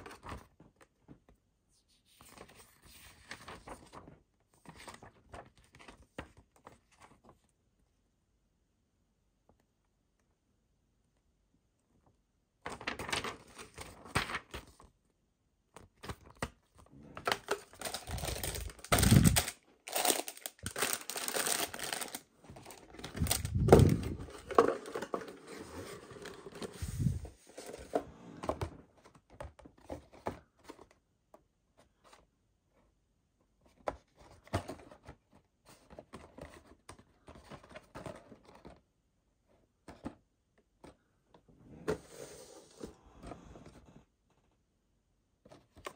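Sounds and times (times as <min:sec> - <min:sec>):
paper pages rustling: 0:00.0 - 0:07.5, 0:12.7 - 0:14.9, 0:15.8 - 0:31.0.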